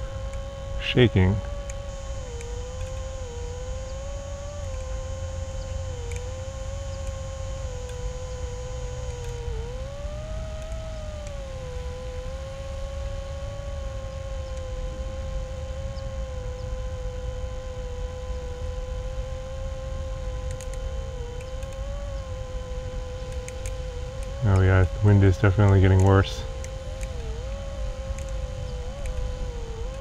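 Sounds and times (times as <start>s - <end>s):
drone motors whining: 0.0s - 30.0s
wind rumble on microphone: 0.0s - 30.0s.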